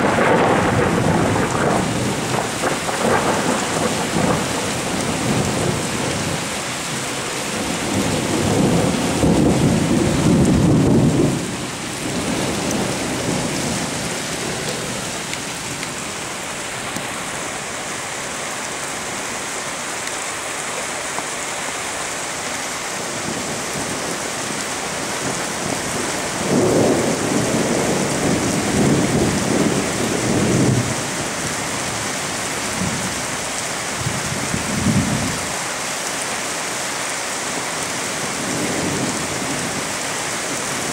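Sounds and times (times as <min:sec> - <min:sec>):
thunder rumbling: 0:00.0 - 0:17.6, 0:23.1 - 0:32.1
steady rain hissing: 0:00.0 - 0:40.9.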